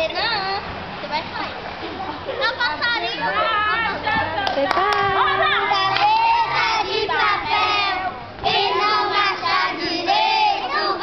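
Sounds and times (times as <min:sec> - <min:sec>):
children singing a gospel song: 0:05.5 - 0:11.0.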